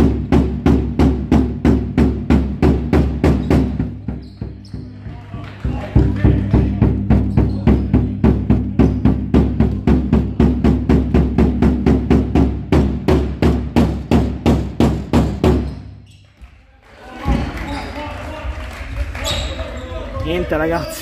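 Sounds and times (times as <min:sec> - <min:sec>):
drum beaten with deep strikes: 0:00.0 - 0:05.0, 0:05.6 - 0:15.7.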